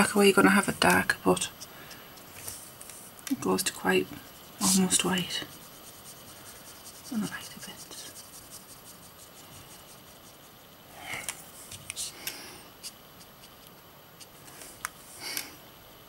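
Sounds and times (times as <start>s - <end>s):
paintbrush scratching on paper: 2.4s - 10.7s.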